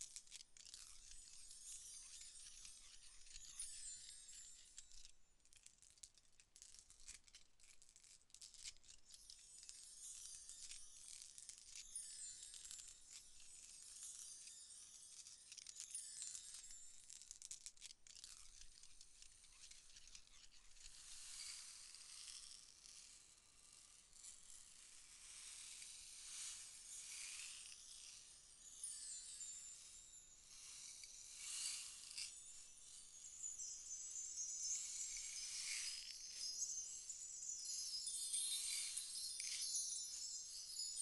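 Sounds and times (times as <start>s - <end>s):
glassy chime-like shimmer: 0.0s - 7.2s, 8.0s - 41.0s
thin high ringing tones: 24.8s - 41.0s.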